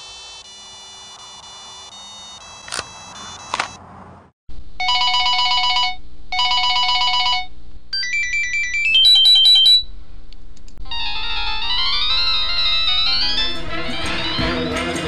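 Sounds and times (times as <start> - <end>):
electronic trilling ringtone: 0.0 - 3.6, 4.8 - 9.9, 10.8 - 15.0
rising ringtone tune: 0.0 - 3.6, 8.0 - 9.9, 10.8 - 15.0
rising beeps: 0.4 - 3.6.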